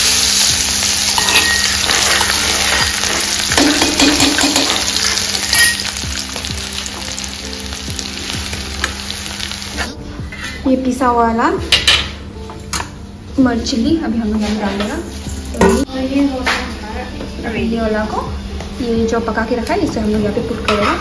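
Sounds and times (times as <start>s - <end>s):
garlic sizzling in hot oil: 0.0s - 9.9s
steel spoons scraping: 1.2s - 4.7s, 5.5s - 5.9s.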